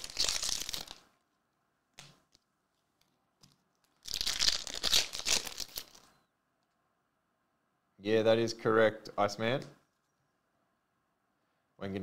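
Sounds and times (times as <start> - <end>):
foil wrapper tearing and crinkling: 0.0 - 1.0, 3.9 - 6.0.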